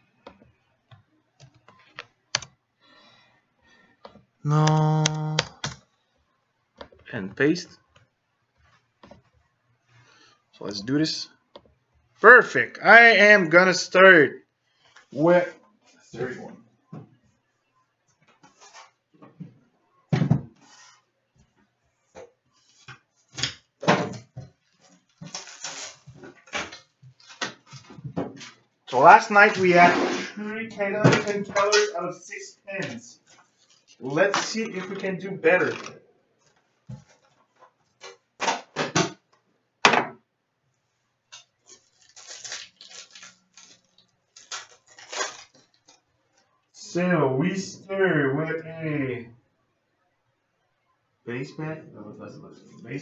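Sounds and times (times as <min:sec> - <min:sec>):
plastic wrap crinkling: 0:24.6 - 0:28.6, 0:33.2 - 0:34.2, 0:41.3 - 0:46.5
pack being torn open: 0:41.4 - 0:46.0.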